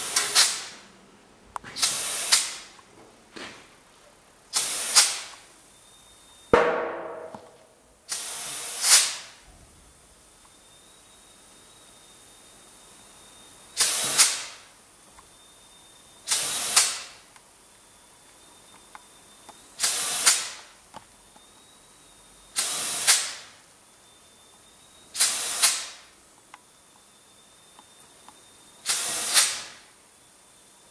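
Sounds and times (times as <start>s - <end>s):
compressed air hissing bursts: 0.0s - 0.8s, 1.6s - 2.7s, 4.5s - 5.3s, 8.1s - 9.4s, 13.7s - 14.7s, 16.2s - 17.3s, 19.8s - 20.7s, 22.5s - 23.6s, 25.1s - 26.1s, 28.8s - 29.9s.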